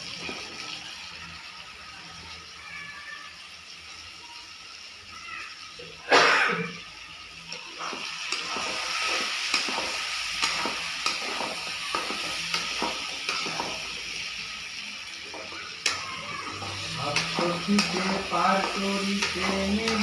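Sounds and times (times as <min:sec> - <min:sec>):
food sizzling in a pan: 0:00.0 - 0:20.0
spatula scraping a pan: 0:07.8 - 0:14.3.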